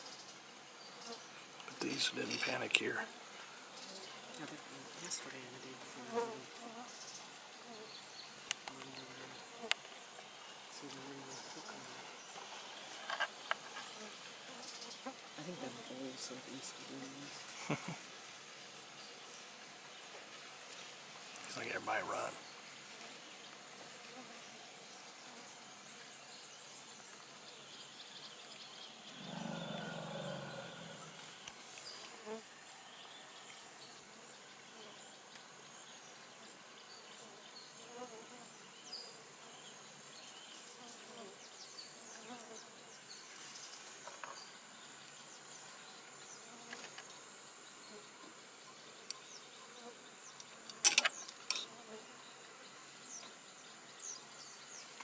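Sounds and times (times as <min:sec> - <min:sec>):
insects buzzing: 0:00.0 - 0:55.0
faint chirps: 0:25.2 - 0:34.0.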